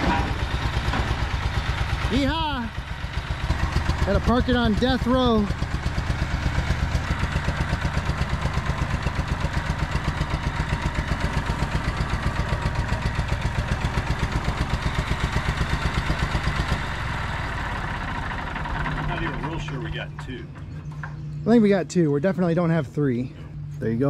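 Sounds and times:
diesel tractor engine running rough: 0.0s - 24.0s.

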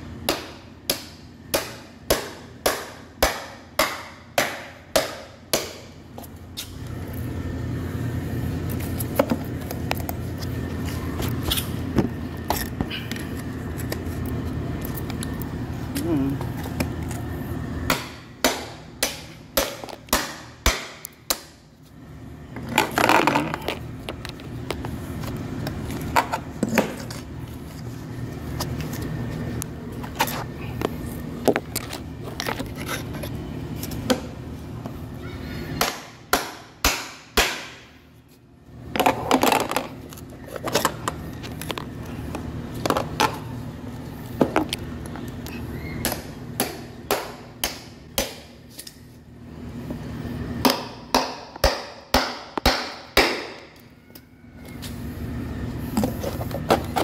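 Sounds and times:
hammer striking chisel on metal: 0.3s - 5.8s.

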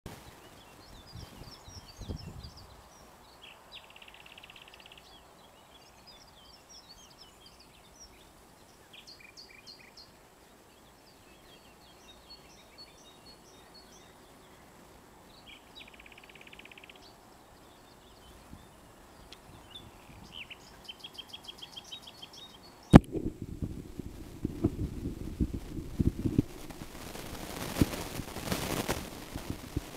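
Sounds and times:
low thumps: 23.0s - 29.9s.

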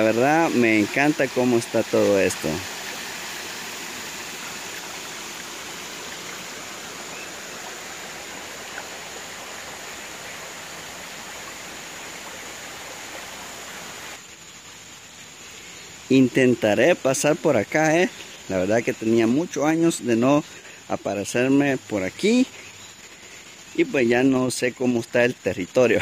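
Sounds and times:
river rushing over stones: 0.0s - 14.3s.

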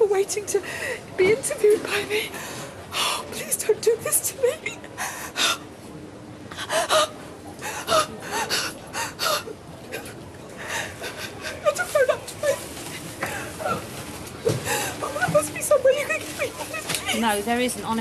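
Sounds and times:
woman gasping and sobbing: 14.6s - 15.2s.

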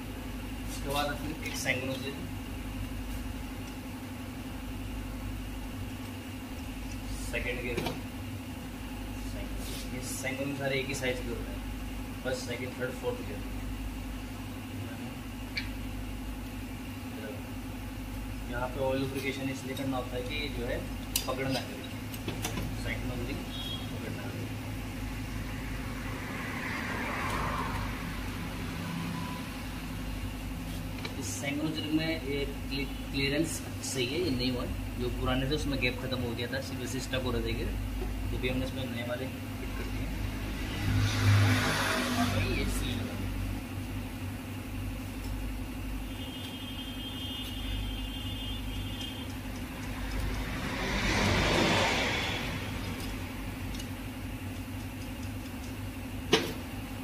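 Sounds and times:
low mechanical hum: 0.0s - 57.0s
vehicle engine running: 33.7s - 57.0s.

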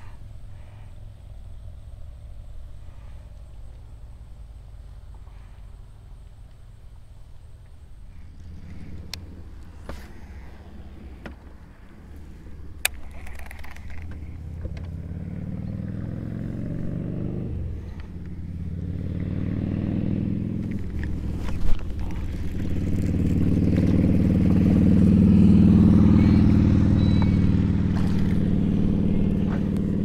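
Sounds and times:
motorboat engine revving: 8.1s - 30.0s.

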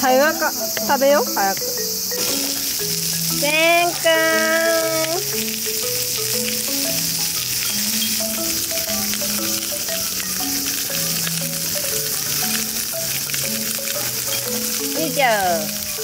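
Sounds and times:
background tune: 0.0s - 16.0s
pork sizzling on a griddle: 0.0s - 16.0s.

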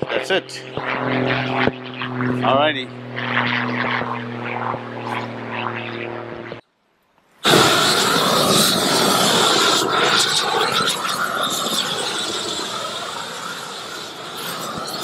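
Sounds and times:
roofing torch jet roaring: 0.0s - 6.6s, 7.4s - 15.0s.

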